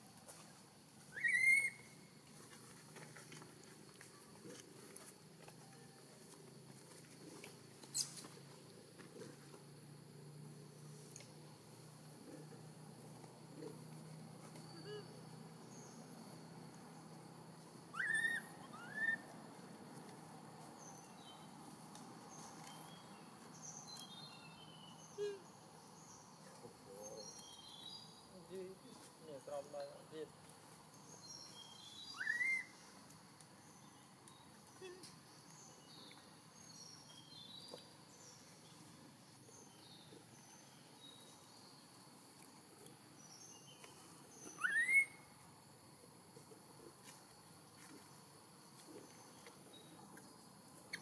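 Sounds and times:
high bird chirps: 1.1s - 1.9s, 31.4s - 32.8s, 43.6s - 45.2s
faint chirps: 13.5s - 17.3s, 22.3s - 30.3s.

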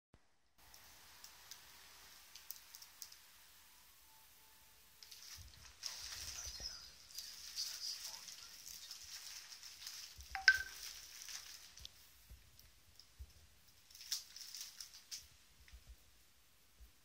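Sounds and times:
bubble wrap crinkling: 0.7s - 3.3s, 5.0s - 15.8s.

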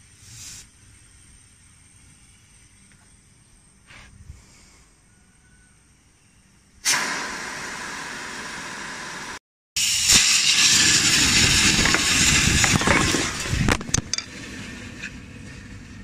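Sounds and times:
pressurised gas hissing: 0.0s - 2.8s, 6.8s - 13.8s.

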